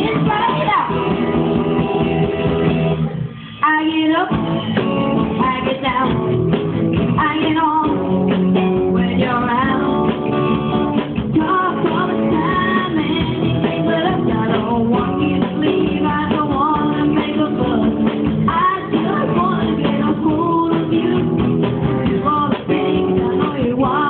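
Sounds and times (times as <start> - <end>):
drum kit: 0.0 - 24.0
electric guitars: 0.0 - 24.0
person singing: 11.2 - 24.0.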